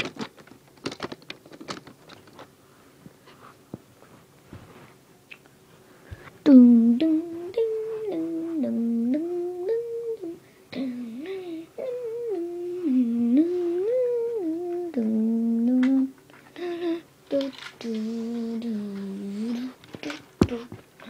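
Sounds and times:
person humming a tune: 6.5s - 20.8s.

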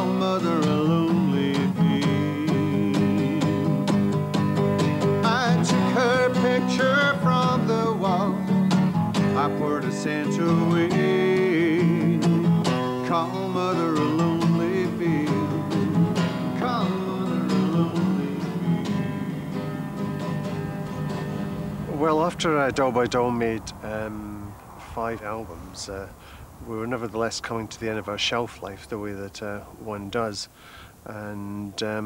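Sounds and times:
acoustic guitar strummed: 0.0s - 23.2s
man singing wordless line: 0.0s - 32.0s.

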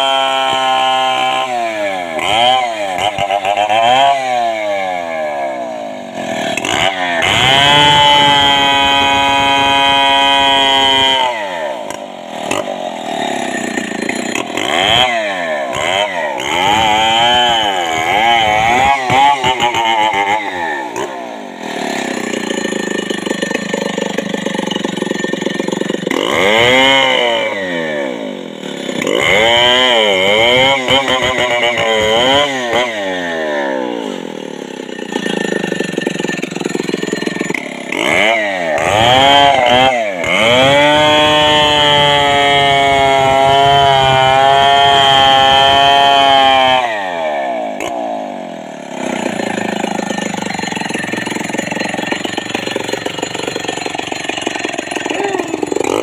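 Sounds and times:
chainsaw cutting log: 0.0s - 56.0s.

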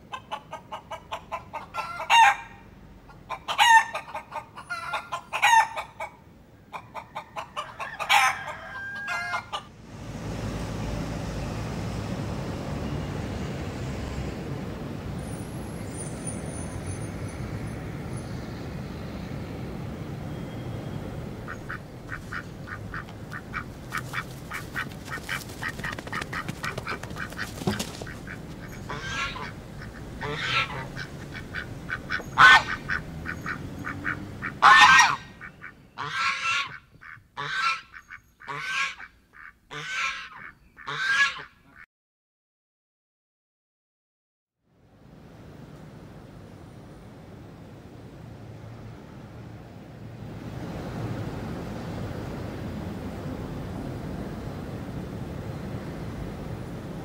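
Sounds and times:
geese gabbling and honking: 0.0s - 9.7s, 21.4s - 41.8s
steady background noise: 0.0s - 39.8s.

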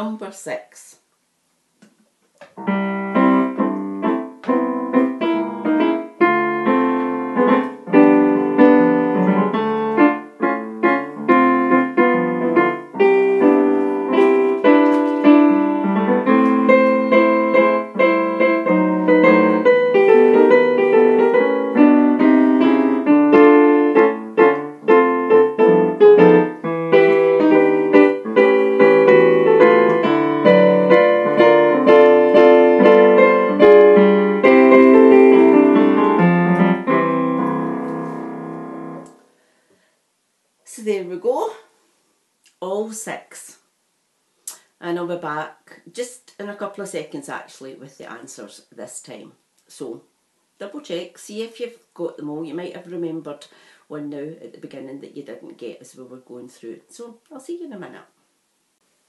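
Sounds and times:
keyboard playing melody over chords: 2.6s - 39.2s.

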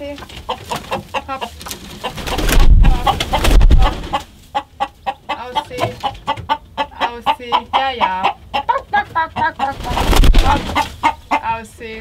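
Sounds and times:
chickens clucking: 0.0s - 12.0s
chicken squawk: 0.5s - 11.6s
loud rustling thump: 2.3s - 4.1s.

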